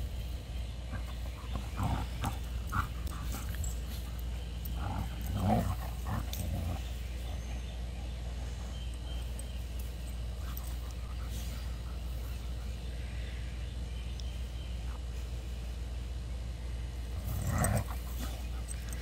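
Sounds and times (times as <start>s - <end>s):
dogs growling: 0.8s - 12.9s, 17.0s - 19.0s.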